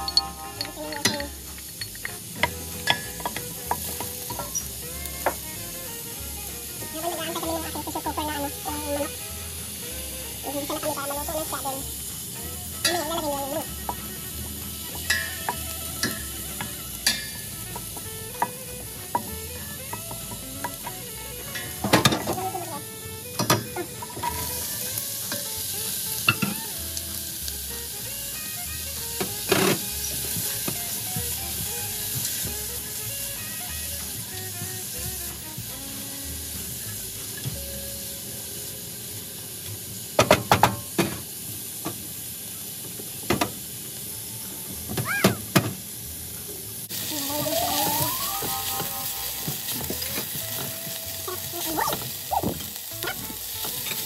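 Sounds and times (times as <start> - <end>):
spoon scraping and knocking pot: 0.0 - 5.5, 13.8 - 22.6
onion and garlic sizzling: 0.0 - 54.0.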